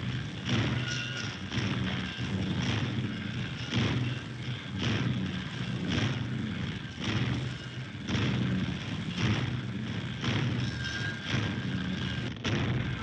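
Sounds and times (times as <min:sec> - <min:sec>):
heavy machinery droning: 0:00.0 - 0:13.0
machine pounding stroke: 0:00.0 - 0:13.0.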